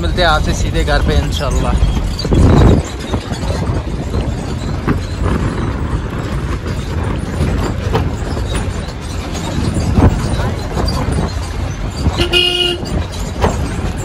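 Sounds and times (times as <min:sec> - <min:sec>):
car engine and road rumble: 0:00.0 - 0:14.0.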